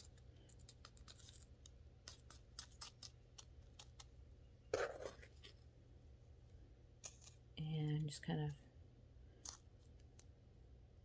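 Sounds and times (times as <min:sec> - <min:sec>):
spoon scooping potting mix: 0:00.0 - 0:05.9.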